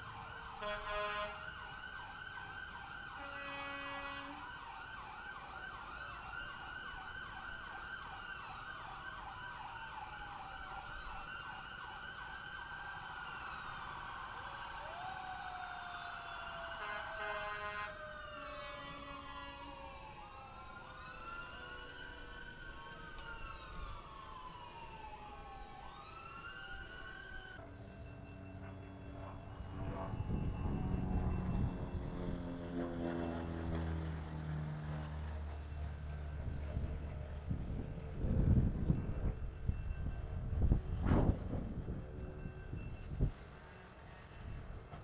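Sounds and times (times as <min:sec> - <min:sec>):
emergency sirens yelping and wailing: 0:00.0 - 0:45.0
vehicle horn blasts: 0:00.6 - 0:01.4, 0:03.2 - 0:04.4, 0:16.8 - 0:19.7.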